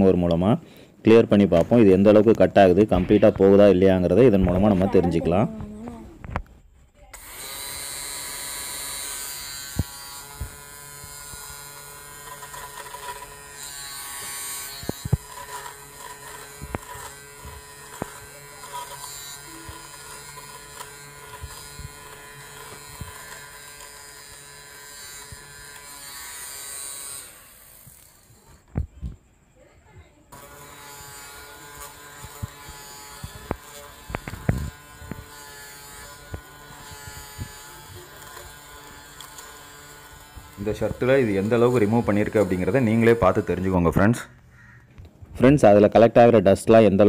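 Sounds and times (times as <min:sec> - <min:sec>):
lint remover motor hum: 0:07.1 - 0:28.8, 0:30.3 - 0:43.9.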